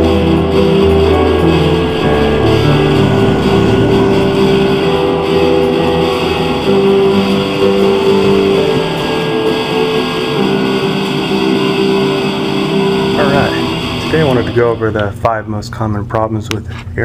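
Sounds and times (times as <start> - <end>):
guitar-led instrumental music: 0.0 - 7.1.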